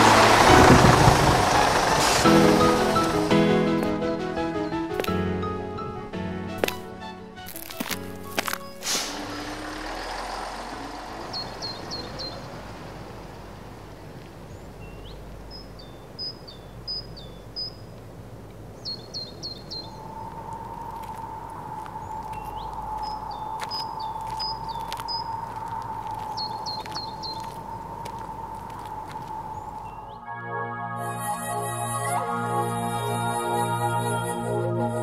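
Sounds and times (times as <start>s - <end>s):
low sliding rumble: 0.0s - 3.6s
steady background hiss: 8.5s - 30.2s
bird chirping: 9.8s - 30.3s.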